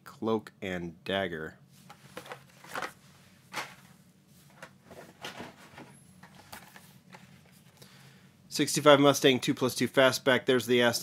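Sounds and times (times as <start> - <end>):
plastic packaging rustling: 1.8 - 7.7.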